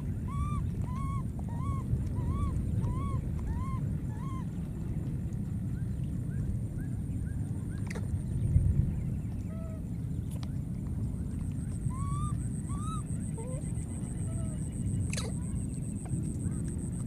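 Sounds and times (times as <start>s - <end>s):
low background rumble: 0.0s - 17.0s
infant monkey crying: 0.2s - 4.4s, 11.9s - 15.4s.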